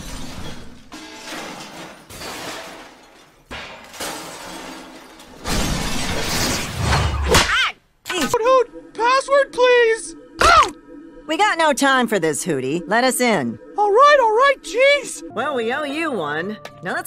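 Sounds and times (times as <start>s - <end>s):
cartoon glass shattering: 0.0s - 7.6s
background music: 8.0s - 17.0s.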